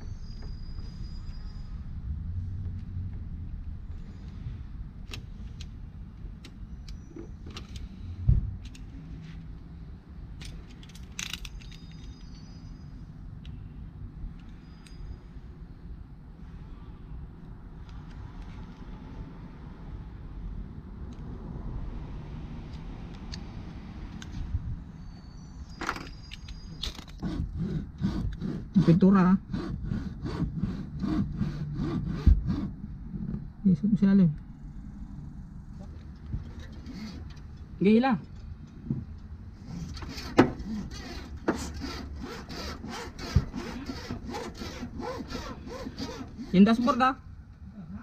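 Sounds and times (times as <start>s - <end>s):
thump: 8.3s - 8.5s
steady low rumble: 27.2s - 36.7s
wire rasping through sealant: 39.6s - 47.0s.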